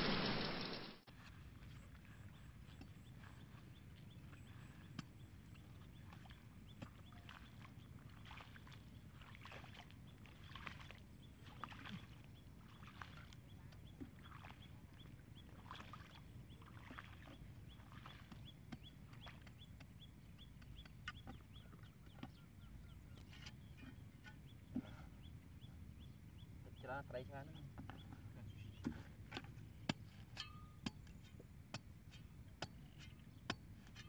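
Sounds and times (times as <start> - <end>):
spade digging into wet soil: 28.8 - 34.0.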